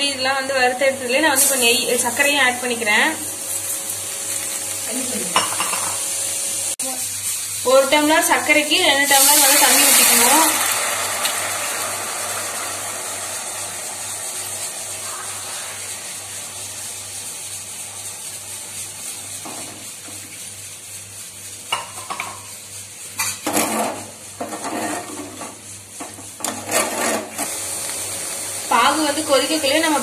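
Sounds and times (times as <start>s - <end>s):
water pouring into a pan: 9.0s - 19.0s.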